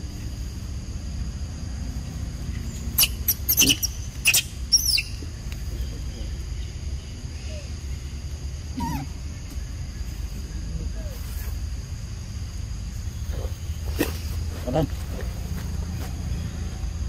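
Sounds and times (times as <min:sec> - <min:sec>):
monkeys squeaking: 0:02.9 - 0:05.2, 0:08.8 - 0:09.2.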